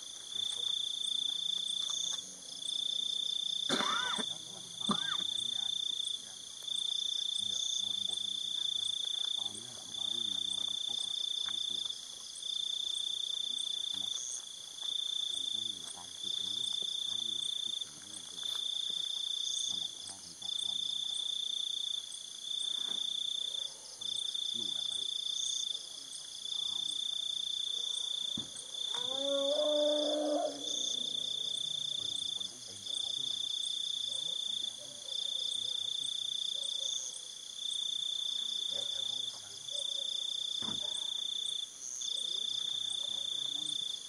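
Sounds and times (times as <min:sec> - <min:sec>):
cricket trilling: 0:00.0 - 0:44.0
high insect ticking: 0:00.0 - 0:44.0.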